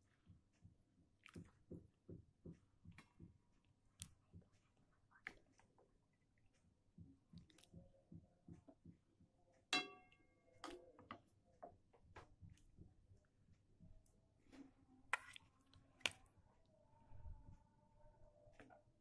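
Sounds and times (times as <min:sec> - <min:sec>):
metal ladle clinking in a wok: 0:09.8 - 0:10.2
sharp ringing clink: 0:09.8 - 0:10.2.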